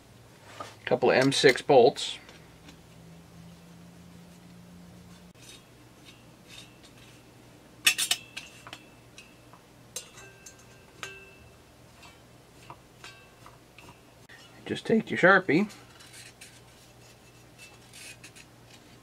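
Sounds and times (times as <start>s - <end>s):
metal clinks and taps: 7.9s - 14.0s.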